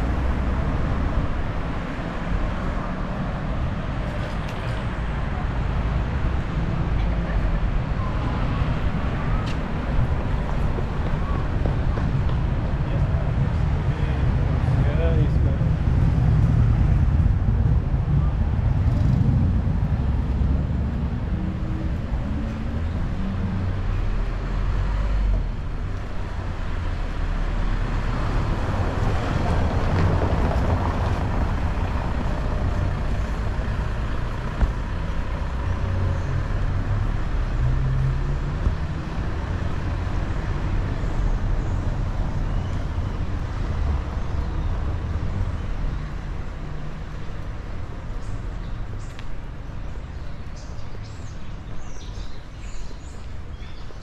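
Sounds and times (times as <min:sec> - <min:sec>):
road traffic rumble: 0:00.0 - 0:54.0
vehicle passing: 0:10.1 - 0:25.6.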